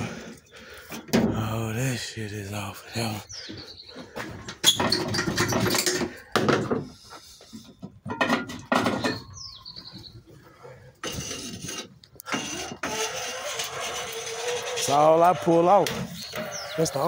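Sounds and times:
hose clattering and rustling: 4.0s - 9.3s, 10.3s - 16.5s.

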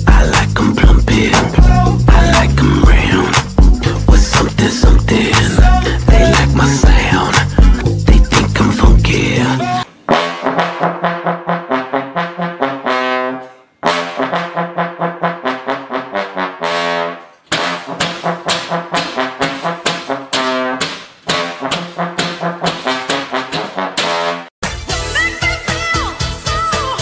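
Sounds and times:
trombone riff: 0.0s - 8.9s, 9.6s - 24.5s.

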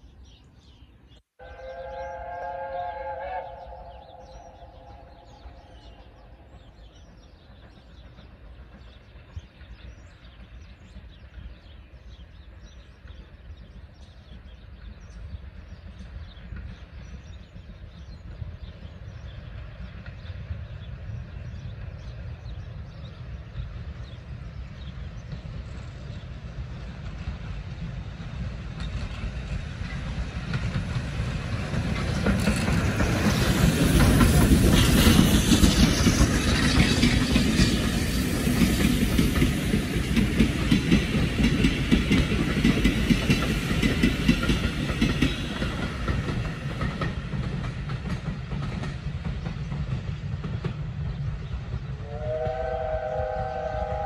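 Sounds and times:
steam train rumbling past: 0.0s - 54.0s.

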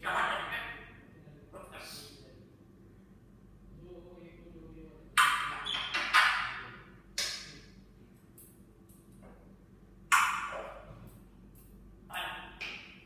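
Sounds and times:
parrot making sharp loud sounds: 0.0s - 0.9s, 5.2s - 7.5s, 10.1s - 10.9s, 12.1s - 13.0s.

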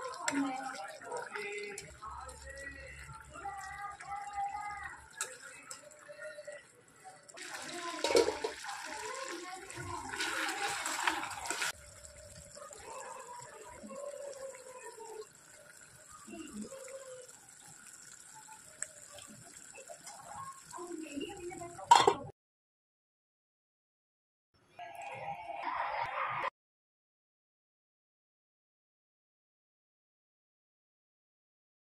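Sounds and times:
gravy bubbling in a pan: 7.2s - 22.0s
steel lid clinking on pan: 8.0s - 8.6s.

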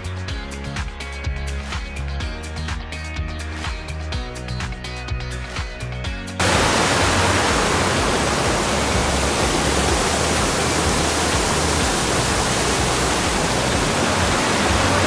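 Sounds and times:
music: 0.0s - 15.0s
water rushing over waterfall: 6.4s - 15.0s.

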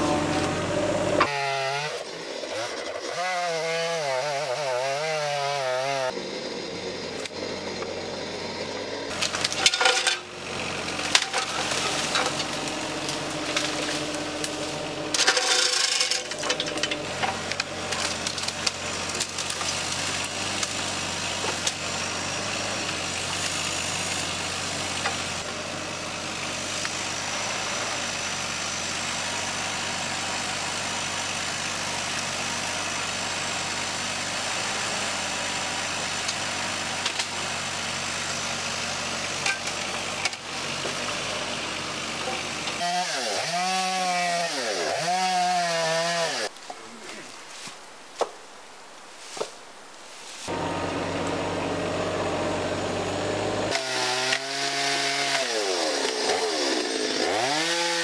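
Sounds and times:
mini digger engine running: 0.0s - 2.9s, 5.6s - 44.1s, 50.5s - 58.0s
chainsaw revving: 0.0s - 47.2s, 50.5s - 58.0s
knocks of logs: 9.1s - 21.8s, 46.5s - 48.4s.

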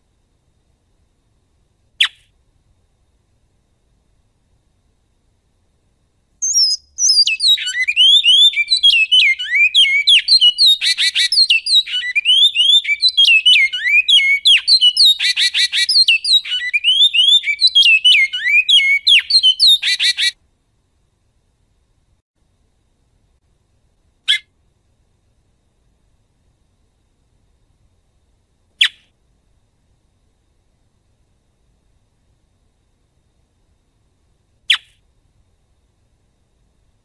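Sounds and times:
finch singing whistled notes: 6.4s - 20.3s.

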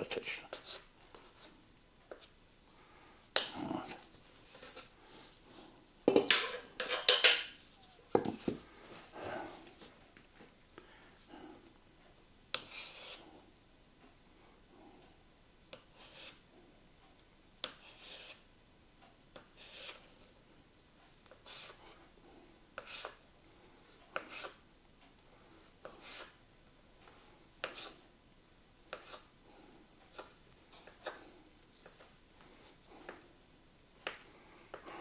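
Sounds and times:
knife scraping cutting board: 6.3s - 7.1s, 12.6s - 13.2s, 17.8s - 18.4s, 22.8s - 23.2s, 24.2s - 24.6s, 25.8s - 26.4s, 27.6s - 28.0s, 28.9s - 29.3s.

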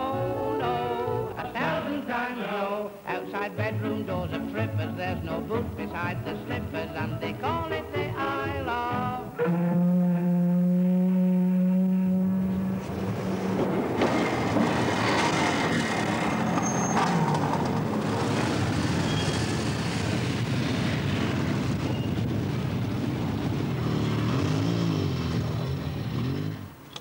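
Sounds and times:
motorcycle engines revving hard: 9.6s - 26.7s.

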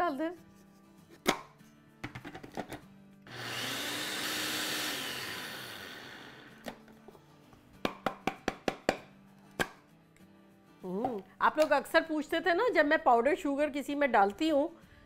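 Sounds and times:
blender motor grinding: 3.3s - 6.8s.

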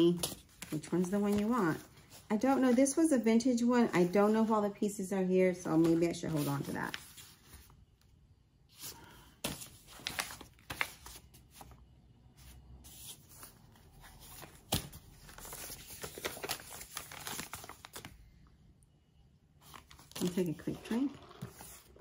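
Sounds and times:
paper rustling and crinkling: 9.4s - 11.8s, 12.9s - 18.2s, 19.6s - 22.0s.

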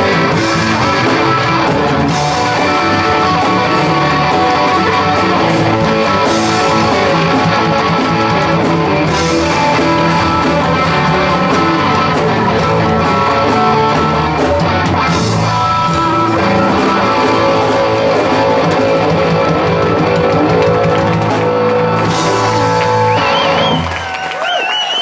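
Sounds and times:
live blues-rock band playing: 0.0s - 24.1s
audience cheering: 15.8s - 25.0s.

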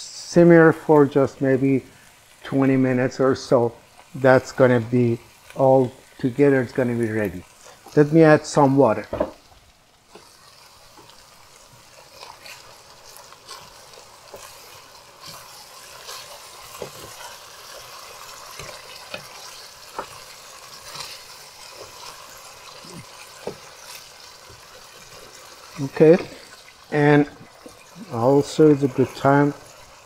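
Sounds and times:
food sizzling in a pot: 0.0s - 30.0s
wooden spoon scraping a pot: 10.1s - 30.0s.

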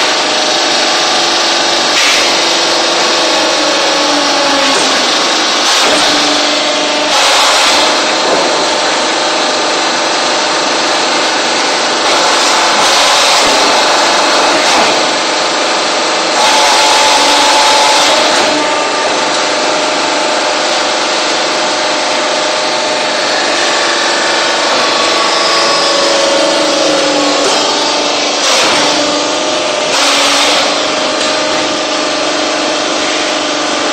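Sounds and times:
hydraulic press mechanical din: 0.0s - 33.9s
whining tones changing pitch: 17.2s - 32.7s.

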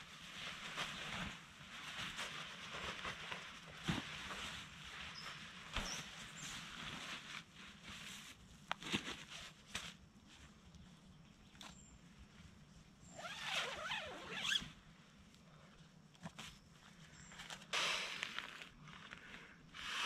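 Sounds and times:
nylon fabric rustling: 0.0s - 10.6s, 12.2s - 15.2s.

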